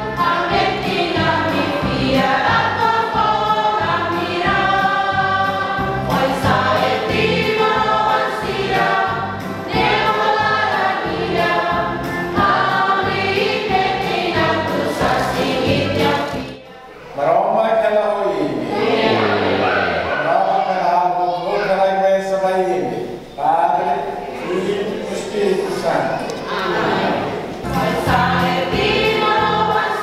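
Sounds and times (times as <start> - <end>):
choir singing a hymn: 0.0 - 16.7, 18.4 - 20.8, 24.4 - 30.0
steady musical accompaniment: 0.0 - 16.8, 26.7 - 30.0.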